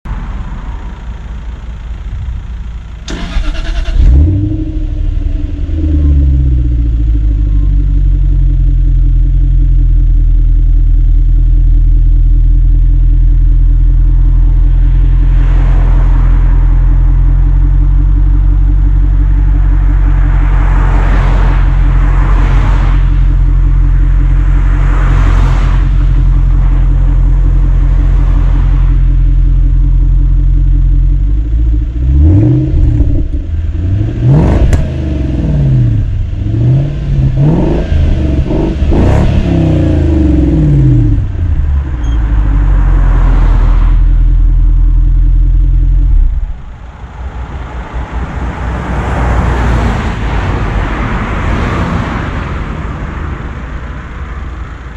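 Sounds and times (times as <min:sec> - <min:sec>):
car exhaust idling: 0:00.0 - 0:49.1
engine revving in quick blips: 0:03.1 - 0:06.7, 0:32.0 - 0:44.1.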